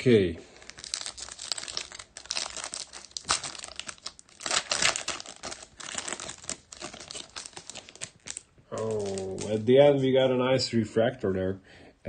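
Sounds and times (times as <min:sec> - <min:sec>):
foil wrapper tearing and crinkling: 0:00.5 - 0:09.8.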